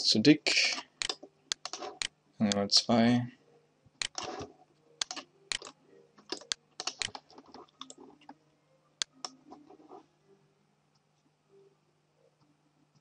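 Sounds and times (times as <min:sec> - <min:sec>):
keyboard and mouse clicking: 0:00.7 - 0:02.6, 0:04.0 - 0:08.4.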